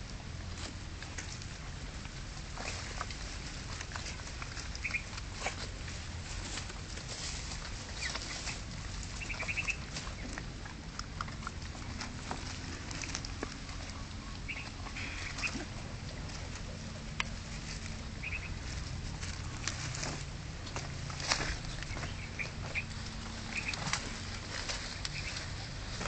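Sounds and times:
paws scuffling in dry leaves: 2.3 - 26.0
puppies squeaking: 4.6 - 5.2, 7.9 - 19.6, 21.0 - 26.0.

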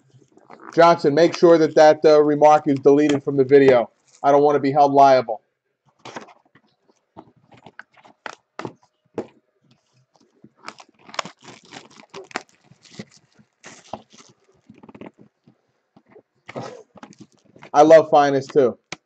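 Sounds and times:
plastic wrap tearing and crinkling: 3.9 - 4.2, 9.8 - 17.8.

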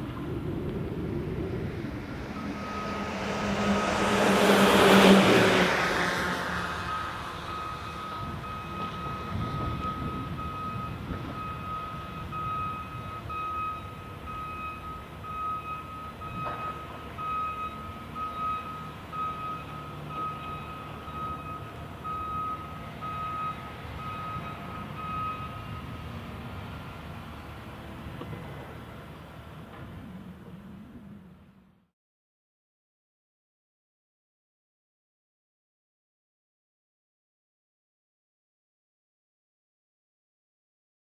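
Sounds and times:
diesel engines rumbling: 0.0 - 31.8
reversing alarm beeps: 2.3 - 4.1, 6.8 - 26.0.

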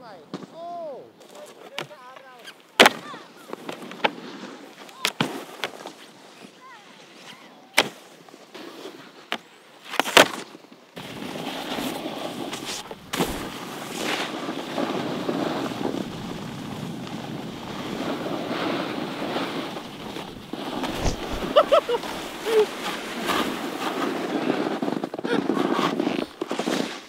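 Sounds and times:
snowboards sliding over snow: 0.4 - 27.0
wind buffeting microphone: 15.1 - 23.3.

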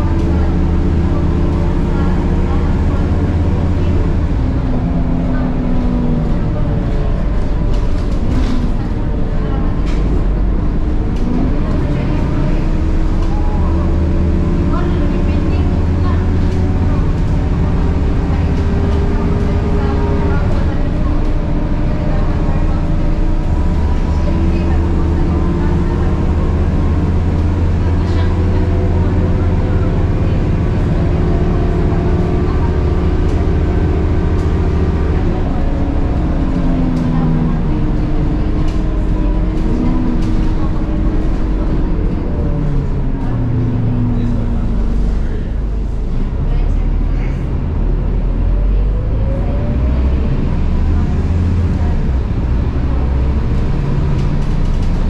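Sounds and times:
bus diesel engine drone: 0.0 - 55.0.

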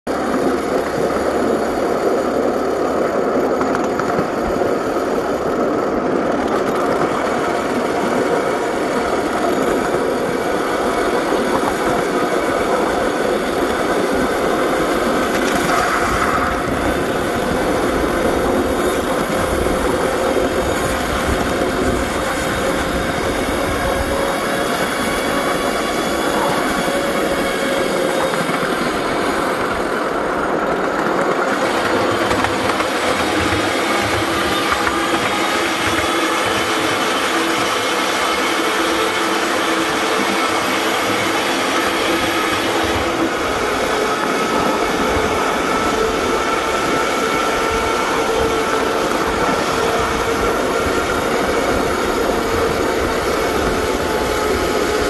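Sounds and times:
miniature train on rails: 0.1 - 55.0.

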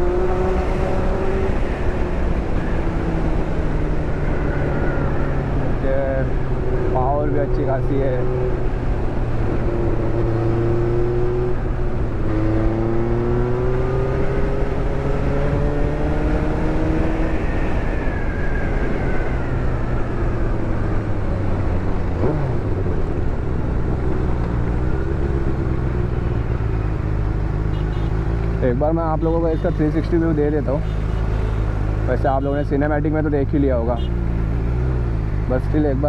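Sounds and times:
motorcycle engine accelerating: 9.4 - 17.5.

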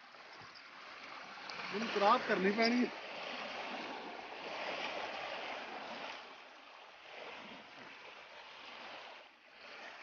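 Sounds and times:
small waves lapping on shore: 0.0 - 10.0.

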